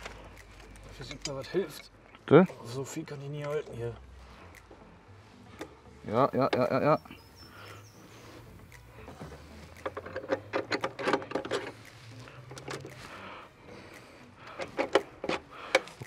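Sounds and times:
metal clicks and taps: 0.0s - 2.6s, 8.6s - 13.1s, 13.9s - 16.0s.

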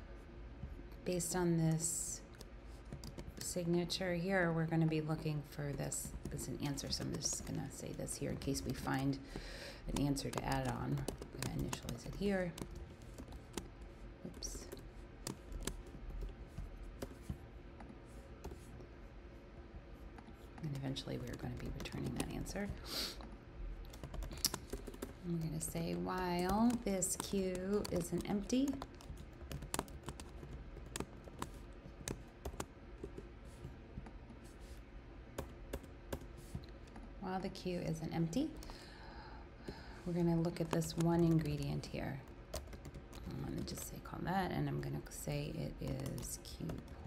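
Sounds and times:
computer keyboard keystrokes: 2.3s - 3.5s, 5.7s - 9.0s, 9.8s - 17.4s, 20.6s - 22.8s, 23.8s - 33.2s, 40.4s - 44.0s, 45.5s - 47.0s.

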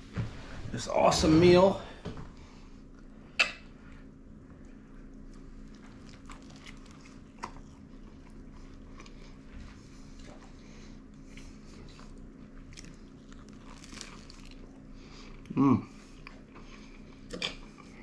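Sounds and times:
chewing and biting sandwich: 4.4s - 18.0s.

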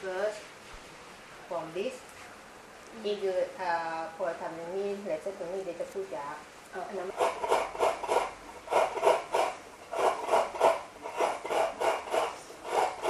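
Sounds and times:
coconut scraping on metal grater: 7.1s - 13.0s.

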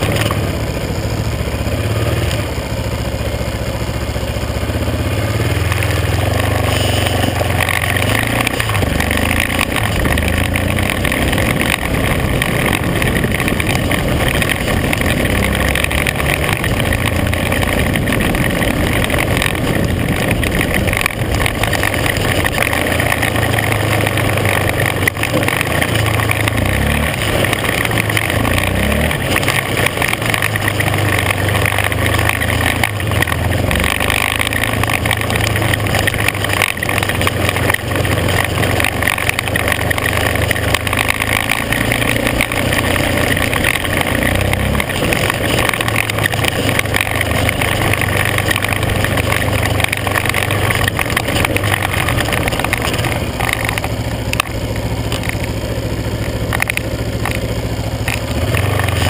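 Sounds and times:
off-road vehicle engine running: 0.0s - 59.0s
road and wind noise: 0.0s - 59.0s.

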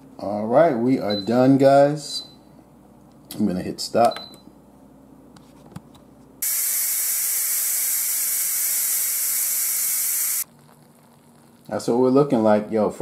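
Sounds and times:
steam hissing from valve: 6.4s - 10.4s.

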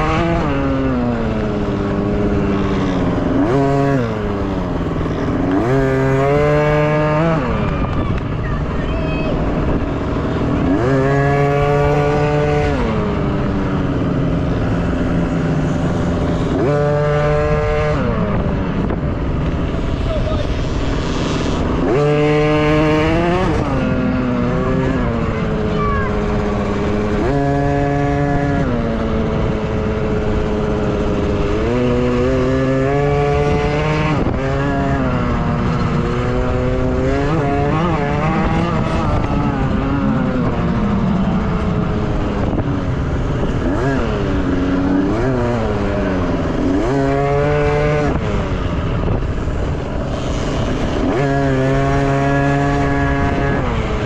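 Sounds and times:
dirt bike engines revving: 0.0s - 54.0s.

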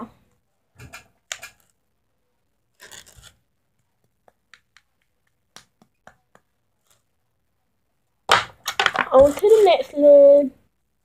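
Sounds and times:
slime rustling: 2.6s - 4.2s.

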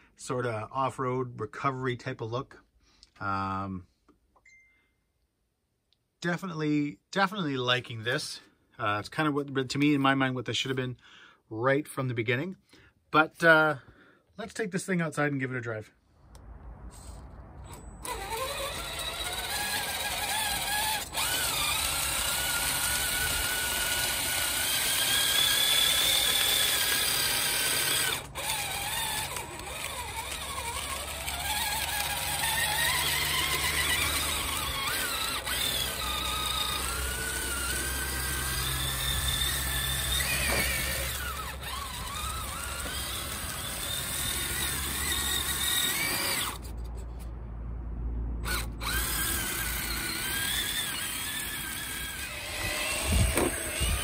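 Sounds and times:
electric motor and gears whining: 17.0s - 47.3s, 48.4s - 54.0s.

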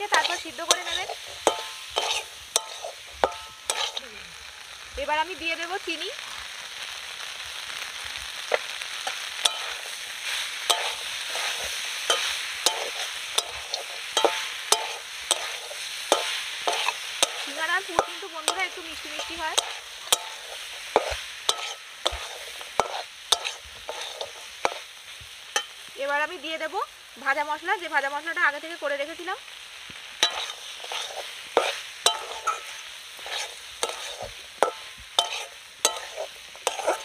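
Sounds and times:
metal spatula clinking on pan: 0.0s - 4.0s, 9.4s - 9.9s, 10.7s - 24.8s, 25.5s - 25.8s, 30.2s - 37.0s
filling sizzling: 0.0s - 37.0s.

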